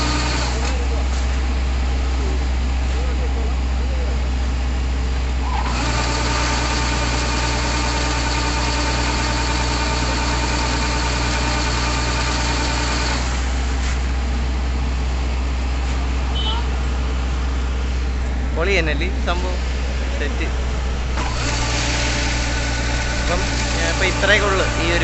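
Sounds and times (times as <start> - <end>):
combine harvester running: 0.0 - 25.0
high mechanical whine: 5.2 - 13.8, 17.4 - 25.0.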